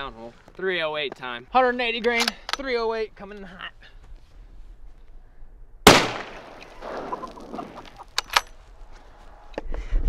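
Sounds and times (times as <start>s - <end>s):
sharp rifle clicks: 2.0s - 2.7s, 5.9s - 7.0s, 8.1s - 8.5s
rifle shot crack: 5.8s - 8.4s.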